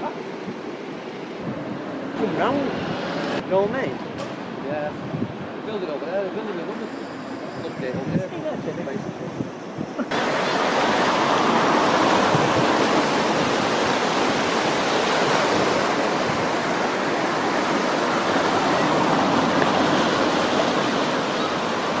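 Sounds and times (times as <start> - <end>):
river water rushing: 10.1 - 22.0.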